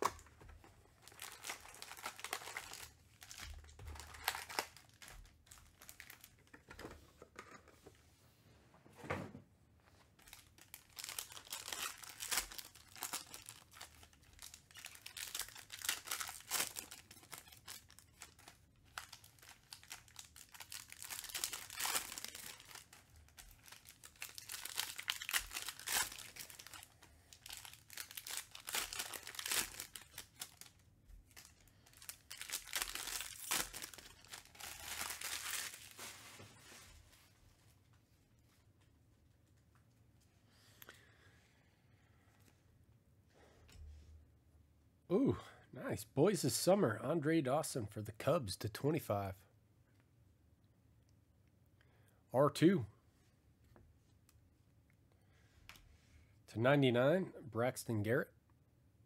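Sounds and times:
plastic wrappers crinkling and tearing: 0:00.0 - 0:06.8, 0:10.2 - 0:37.2.

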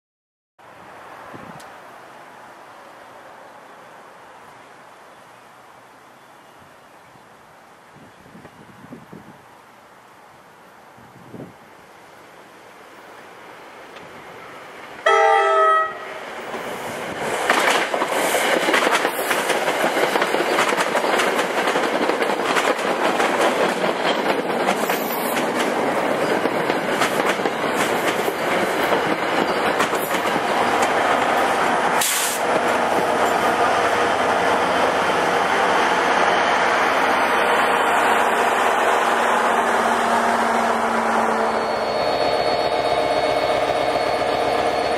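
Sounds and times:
train passing with steady rush: 0:00.6 - 0:44.9
diesel locomotive passing: 0:12.1 - 0:44.9
train horn blast: 0:15.0 - 0:16.1
wheels clicking over rail joints: 0:17.3 - 0:33.6.

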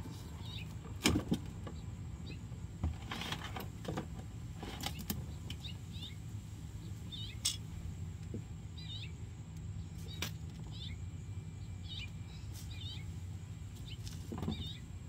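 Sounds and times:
low steady rumble: 0:00.0 - 0:15.0
bird chirps: 0:00.4 - 0:00.8, 0:04.9 - 0:06.2, 0:06.8 - 0:07.7, 0:08.7 - 0:13.2, 0:13.8 - 0:15.0.

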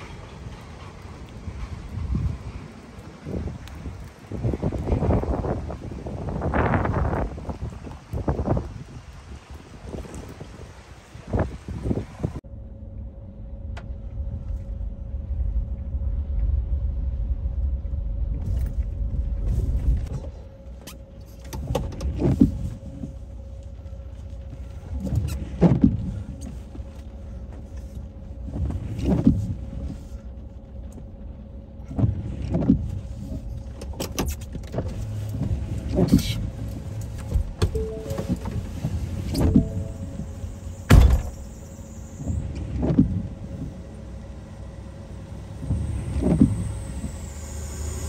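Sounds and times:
truck diesel engine: 0:00.0 - 0:08.1, 0:34.6 - 0:48.0
steady low rumble: 0:00.0 - 0:48.0.

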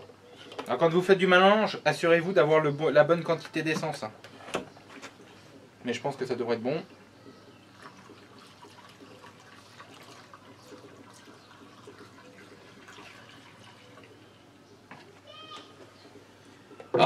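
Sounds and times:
petrol trickling into plastic jug: 0:06.2 - 0:16.0.

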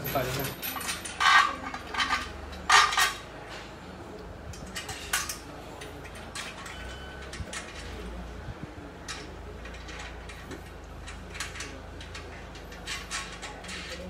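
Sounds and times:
steel tubes clanking: 0:00.0 - 0:03.3.

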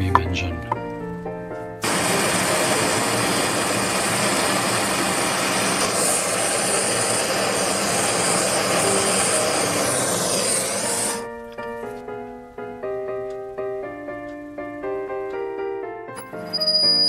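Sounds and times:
gas torch flame hissing: 0:01.8 - 0:11.4.

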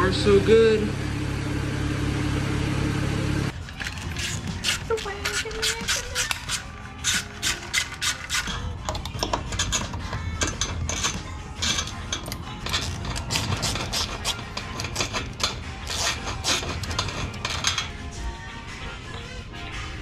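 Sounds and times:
metal tools clinking: 0:03.5 - 0:18.1
hand ratchet clicking: 0:03.6 - 0:17.9.

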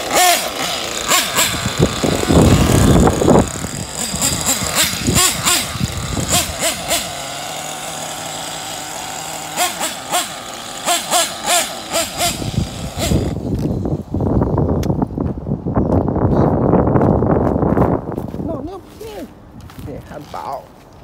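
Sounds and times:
toy nitro engine revving: 0:00.0 - 0:13.8.

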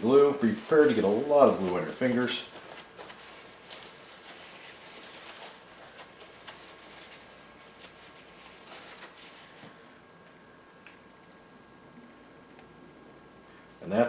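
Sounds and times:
paper towel rustling: 0:00.0 - 0:10.2.

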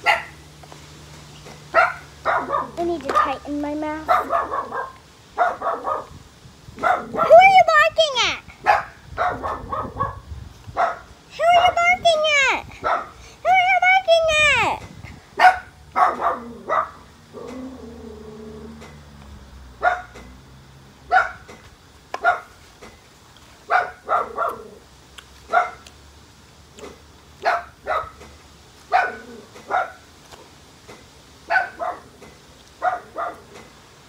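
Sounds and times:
dog barking: 0:00.0 - 0:00.4, 0:01.7 - 0:03.4, 0:04.0 - 0:06.2, 0:06.8 - 0:07.4, 0:08.6 - 0:10.2, 0:10.8 - 0:11.1, 0:12.8 - 0:13.2, 0:15.4 - 0:17.0, 0:19.8 - 0:20.2, 0:21.1 - 0:21.5, 0:22.2 - 0:22.5, 0:23.7 - 0:24.7, 0:25.5 - 0:25.8, 0:27.4 - 0:28.2, 0:28.9 - 0:30.0, 0:31.5 - 0:32.1, 0:32.8 - 0:33.5.

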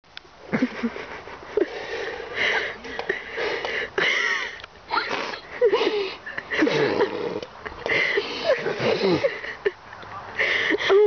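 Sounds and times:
person giggling: 0:00.5 - 0:09.8, 0:10.4 - 0:11.0
nose sniffs: 0:05.0 - 0:05.5.

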